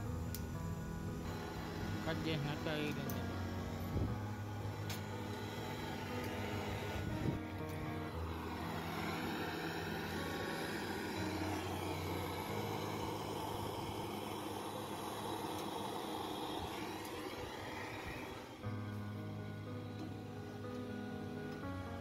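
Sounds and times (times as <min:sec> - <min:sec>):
torch flame hissing: 0:00.0 - 0:20.6.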